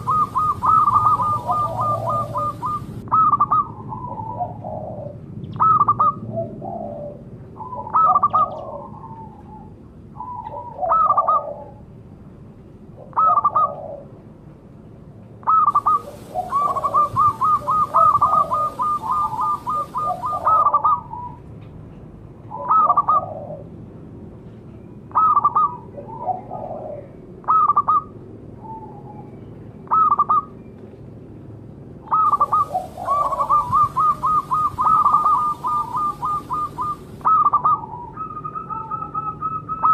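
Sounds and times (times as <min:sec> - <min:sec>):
dove cooing: 0:00.0 - 0:11.9, 0:13.0 - 0:14.2, 0:15.5 - 0:21.4, 0:22.5 - 0:23.7, 0:25.2 - 0:29.0, 0:32.1 - 0:39.9.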